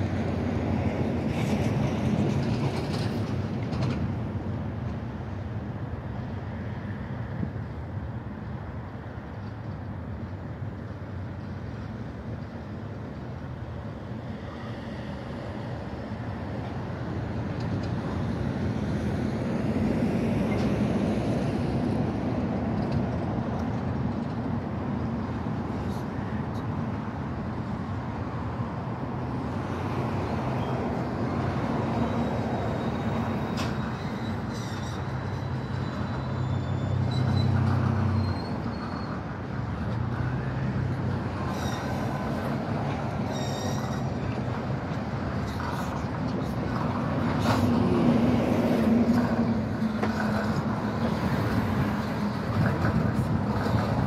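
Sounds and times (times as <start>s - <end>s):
train engine humming: 0.0s - 54.0s
wheels rumbling on track: 0.0s - 54.0s
faint high squeaks: 32.0s - 39.2s, 41.5s - 42.1s, 43.2s - 44.4s.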